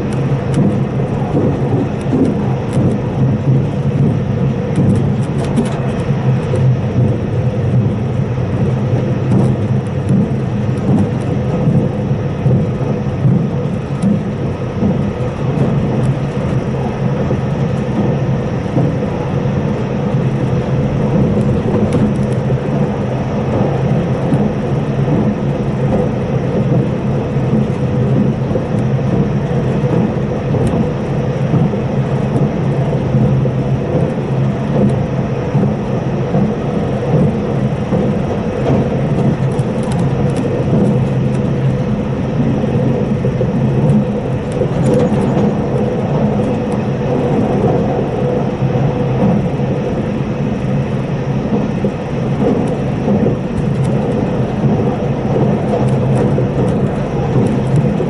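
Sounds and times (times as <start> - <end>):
low hum: 0.0 - 58.0
train wheels rumbling on rail: 0.0 - 58.0.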